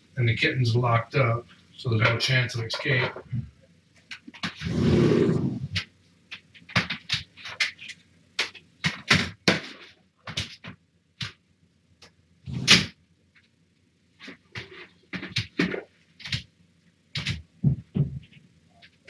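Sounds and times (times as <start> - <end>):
objects knocking and clattering: 17.2 - 19.0.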